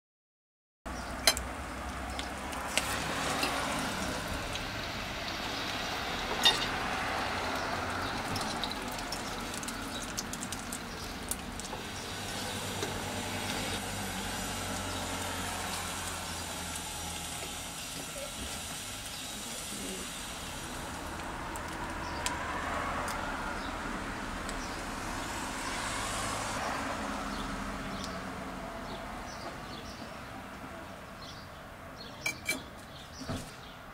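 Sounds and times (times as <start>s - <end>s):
bread frying in hot oil: 1.0s - 29.2s.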